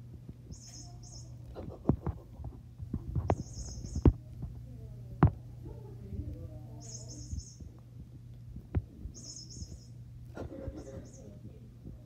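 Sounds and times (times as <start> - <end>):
steady low hum: 0.0 - 12.0
high-pitched chirping trills: 0.5 - 1.4, 3.3 - 4.1, 6.7 - 7.7, 9.1 - 10.0.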